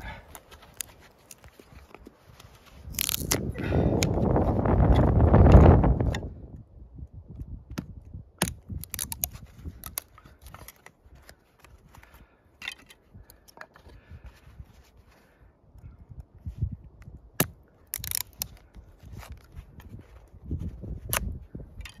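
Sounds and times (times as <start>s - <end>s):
knife scraping wood: 0.0s - 5.2s, 8.4s - 13.0s
wood cracking and crunching: 0.0s - 6.3s, 7.3s - 14.7s, 16.9s - 22.0s.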